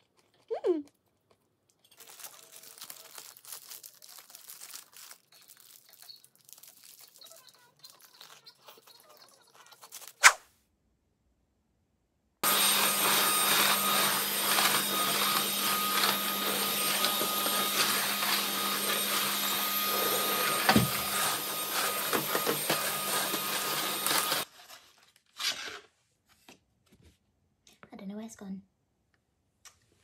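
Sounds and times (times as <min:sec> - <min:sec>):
motor appliance humming and whining: 0:12.4 - 0:24.4.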